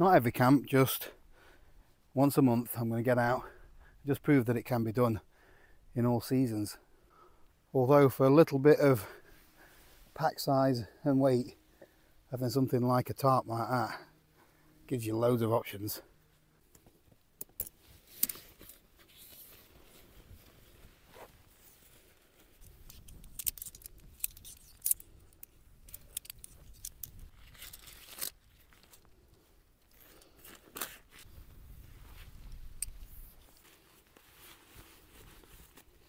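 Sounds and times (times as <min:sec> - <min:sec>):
tent fabric rustling and scraping: 0:16.2 - 0:23.1, 0:29.9 - 0:36.0.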